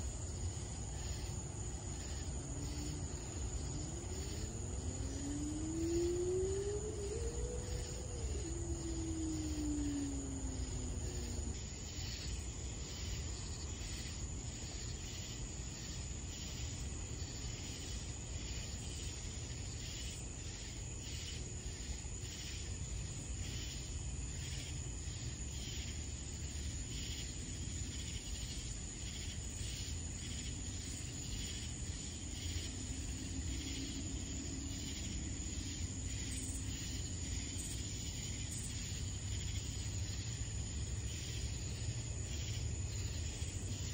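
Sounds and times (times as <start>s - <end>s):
low steady rumble: 0.0s - 11.9s
crickets chirping: 0.0s - 43.9s.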